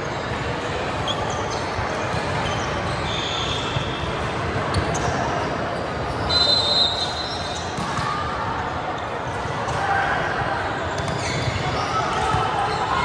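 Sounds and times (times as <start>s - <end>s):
background chatter: 0.0s - 13.0s
short high squeals: 2.4s - 3.9s
balls bouncing on hardwood court: 7.7s - 8.2s, 11.0s - 11.7s.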